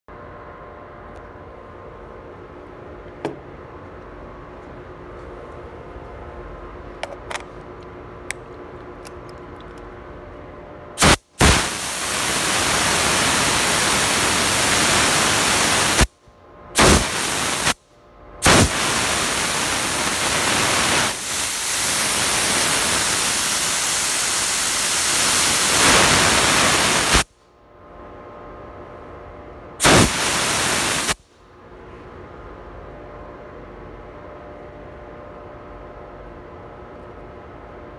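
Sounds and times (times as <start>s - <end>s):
spray gun hissing: 11.0s - 16.1s, 16.8s - 17.8s, 18.4s - 27.3s, 29.8s - 31.2s.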